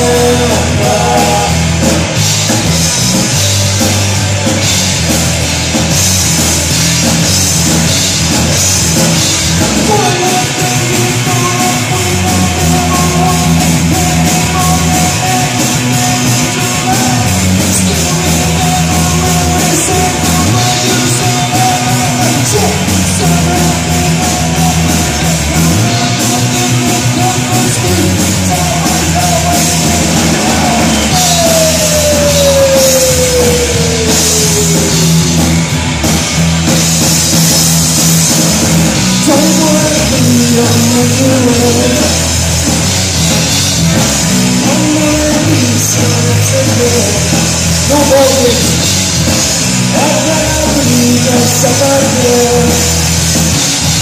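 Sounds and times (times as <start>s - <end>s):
live rock band playing: 0.0s - 54.0s.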